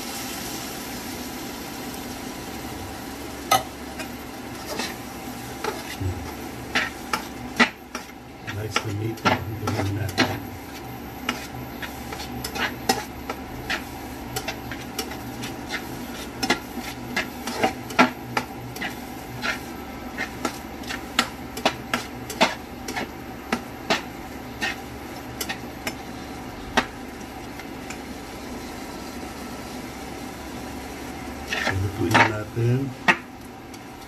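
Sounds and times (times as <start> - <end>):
steady low hum: 1.1 - 34.0
metal spatula scraping frying pan: 4.0 - 6.0, 6.6 - 26.0, 31.4 - 32.5.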